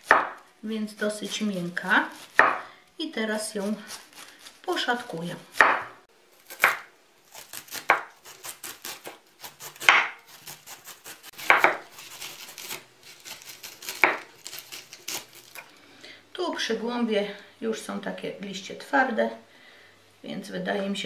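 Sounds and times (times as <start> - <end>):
knife slicing cabbage on board: 3.5 - 15.7.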